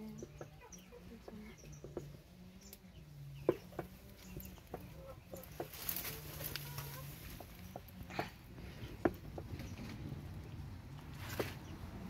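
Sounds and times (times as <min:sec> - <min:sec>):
faint voices: 0:00.0 - 0:02.3.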